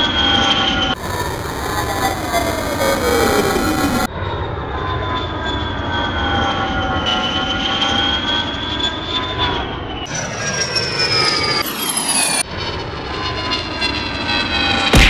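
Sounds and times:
airliner engine roar with whining: 0.0 - 15.0.

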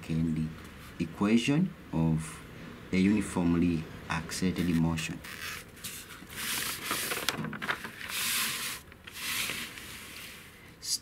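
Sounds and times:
notebook paper rustling: 4.6 - 10.4.

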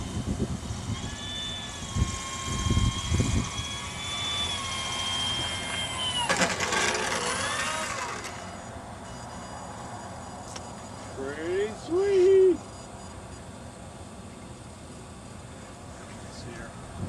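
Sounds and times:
electric propeller whining: 0.0 - 17.0
sharp clatter: 4.6 - 8.5.

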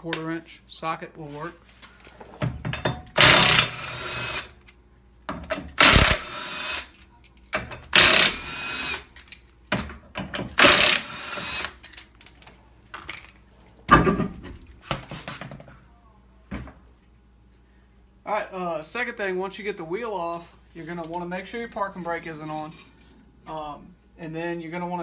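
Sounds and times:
impact wrench bursts: 3.1 - 4.6, 5.5 - 7.0, 7.8 - 9.1, 10.4 - 11.8.

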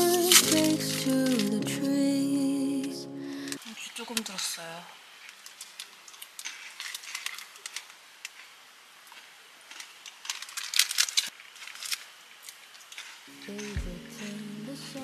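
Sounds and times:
snack wrapper crinkling: 5.2 - 8.6, 9.2 - 13.2.

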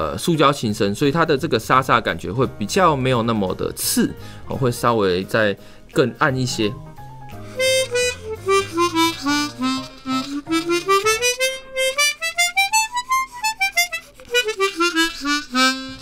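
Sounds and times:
chromatic harmonica single notes: 7.4 - 16.0.

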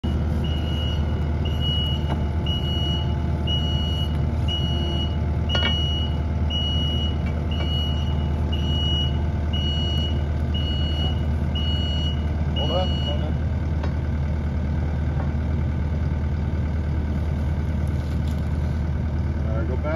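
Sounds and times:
electronic warning beep: 0.0 - 13.4
heavy machine engine idling: 0.0 - 19.9.

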